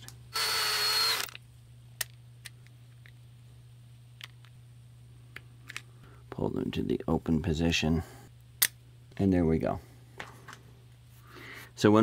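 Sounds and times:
power tool motor whine: 0:00.3 - 0:01.4.

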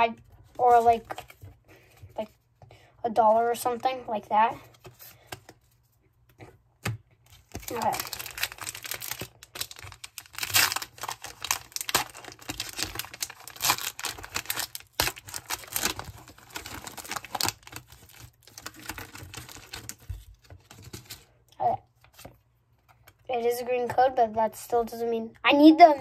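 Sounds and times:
foil wrapper crinkling: 0:07.5 - 0:21.3.

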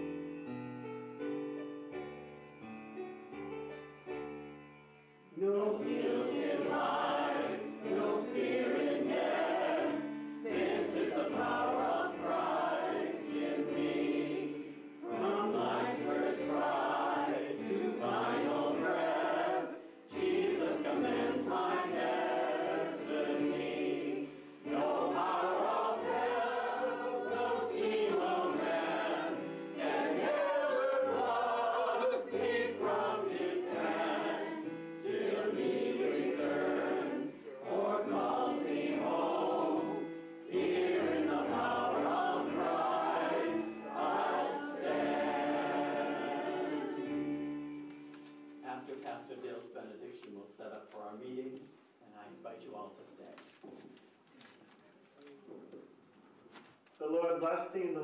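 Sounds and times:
group singing a hymn: 0:05.3 - 0:49.8.

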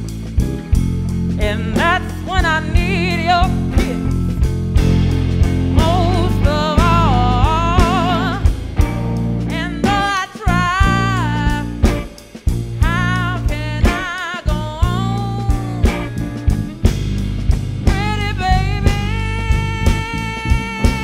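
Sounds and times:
blues band playing: 0:00.0 - 0:21.0
woman singing with vibrato: 0:01.4 - 0:04.1, 0:05.7 - 0:08.6, 0:09.5 - 0:12.0, 0:12.8 - 0:16.1, 0:17.9 - 0:21.0.

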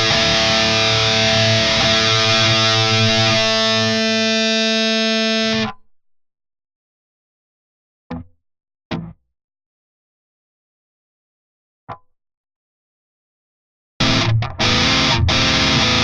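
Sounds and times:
distorted electric guitar note: 0:00.0 - 0:05.6, 0:14.0 - 0:16.0.

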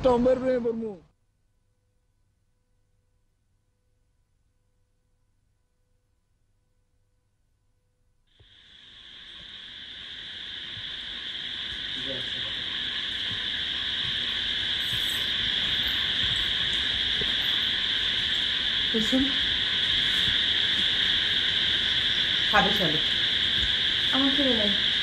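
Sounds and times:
crickets chirping: 0:08.3 - 0:25.0.

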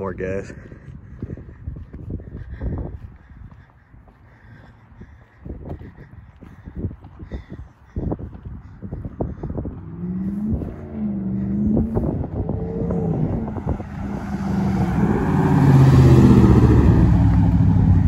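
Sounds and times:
pickup truck exhaust revving: 0:09.2 - 0:18.0.

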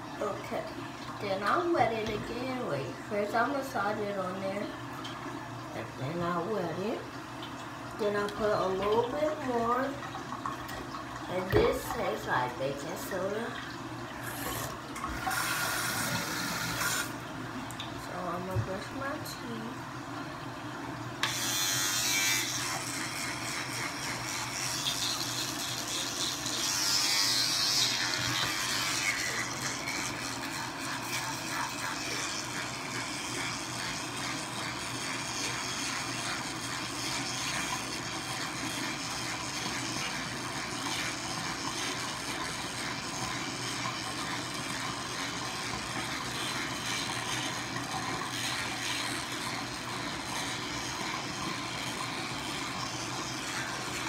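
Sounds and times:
toothbrush scrubbing teeth: 0:14.2 - 0:17.2, 0:21.2 - 0:54.0.

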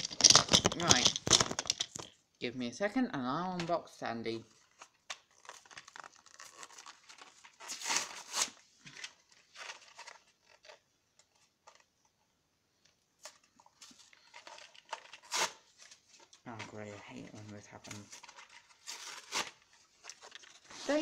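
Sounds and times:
packaging tearing and crinkling: 0:04.7 - 0:10.8, 0:13.9 - 0:15.8, 0:18.0 - 0:21.0.

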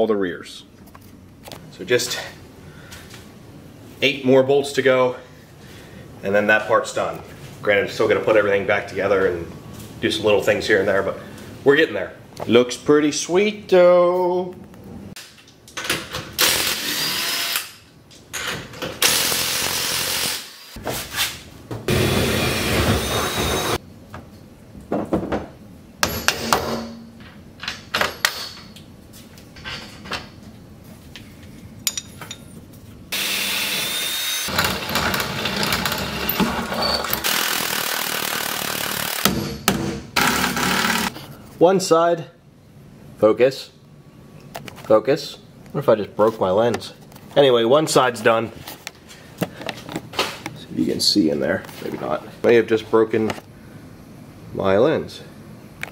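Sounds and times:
cordless power tool whine: 0:21.9 - 0:23.8, 0:33.2 - 0:36.4.

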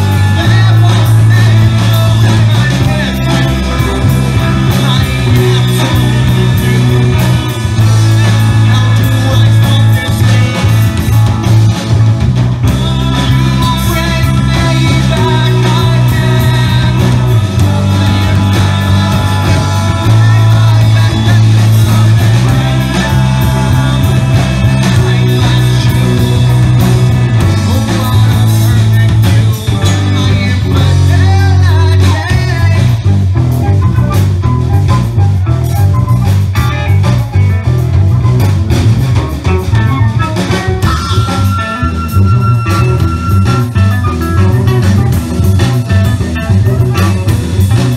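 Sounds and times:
lead singer: 0:00.0 - 0:38.0
rock band playing loudly: 0:00.0 - 0:47.9
strong low bass line: 0:00.0 - 0:47.9.

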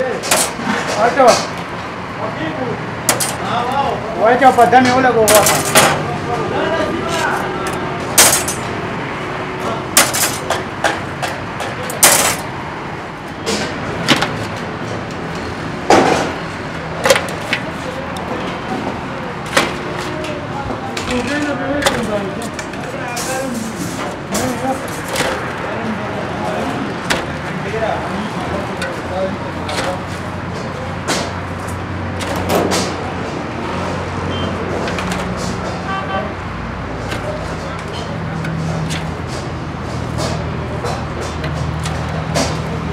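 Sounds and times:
road traffic hum: 0:00.0 - 0:42.9
steady background noise: 0:00.0 - 0:42.9
vehicles passing: 0:00.0 - 0:42.9.

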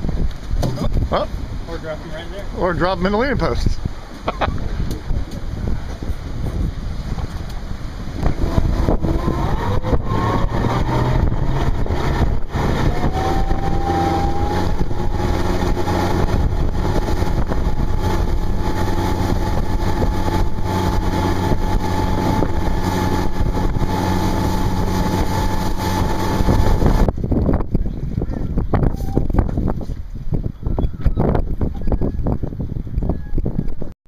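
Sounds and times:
wind noise on microphone: 0:00.0 - 0:34.0
boat engine running: 0:04.4 - 0:27.8.

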